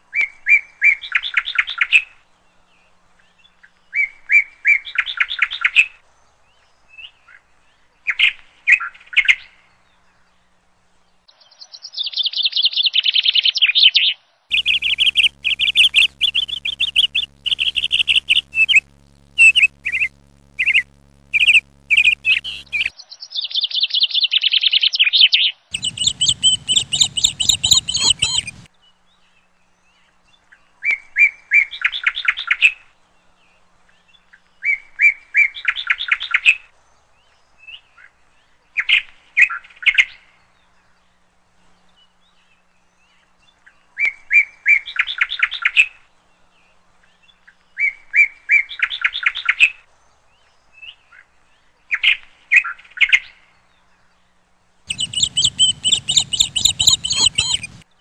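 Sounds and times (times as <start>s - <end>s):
bird chirping: 14.5s - 22.9s, 25.7s - 28.7s, 54.9s - 57.8s
bird singing trilled phrase: 14.5s - 22.9s, 25.8s - 28.7s, 54.9s - 57.8s.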